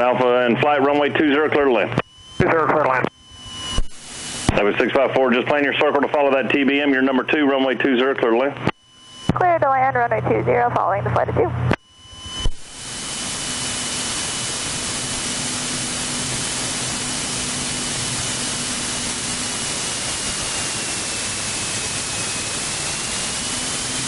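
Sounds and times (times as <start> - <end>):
radio speech: 0.0 - 3.1, 4.5 - 8.7, 9.3 - 11.6
faint thin whine: 0.0 - 24.0
radio hiss: 0.0 - 24.0.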